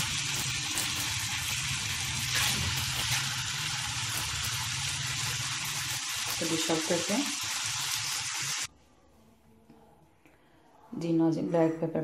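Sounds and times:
potato slices sizzling in oil: 0.0 - 8.7.

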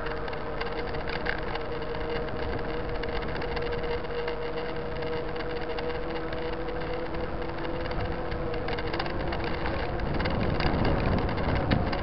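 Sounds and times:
bike rattling: 0.0 - 12.0
bike tyres humming on asphalt: 0.0 - 12.0
wind: 0.0 - 12.0.

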